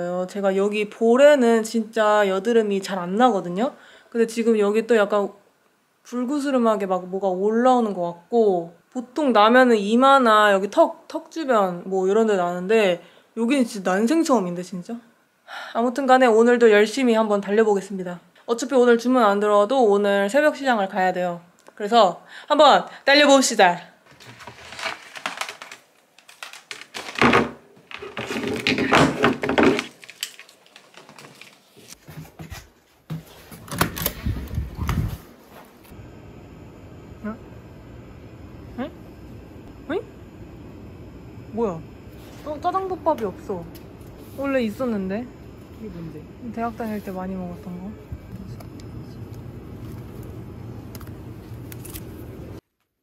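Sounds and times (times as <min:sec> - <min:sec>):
plastic packaging crinkling: 0:24.1 - 0:32.2, 0:48.4 - 0:52.6
refrigerated cases humming: 0:24.2 - 0:52.6
low rumbling handling noise: 0:43.1 - 0:52.6.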